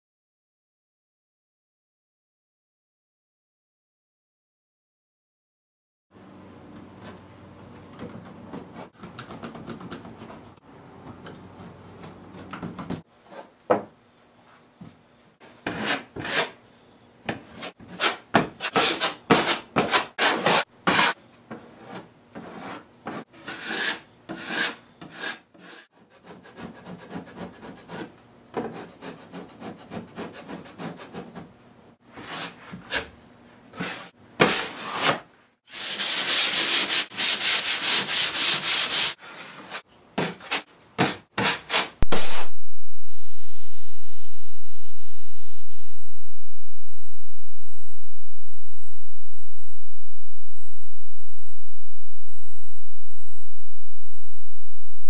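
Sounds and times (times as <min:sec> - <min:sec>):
taping knife scraping compound: 0:15.4 - 0:16.6, 0:17.5 - 0:31.4, 0:32.1 - 0:42.5
knife scraping drywall paper: 0:15.6 - 0:16.6, 0:17.5 - 0:31.4, 0:32.1 - 0:33.1, 0:33.7 - 0:42.5
hand sanding: 0:33.8 - 0:42.5.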